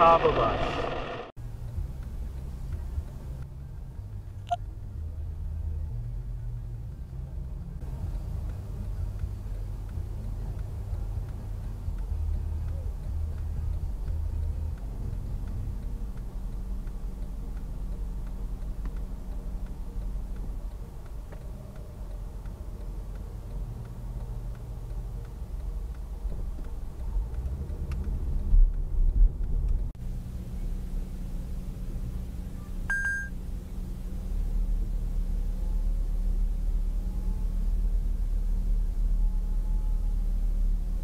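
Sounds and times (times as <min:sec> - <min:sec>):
faint regular ticking: 0:07.4 - 0:29.9
short electronic beep: 0:32.9 - 0:33.4.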